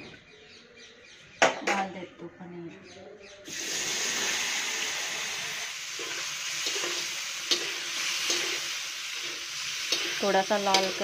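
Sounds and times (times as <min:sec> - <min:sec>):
paneer sizzling in hot ghee: 0:03.5 - 0:11.0
metal spatula clicking against pan: 0:07.5 - 0:08.5, 0:09.9 - 0:11.0.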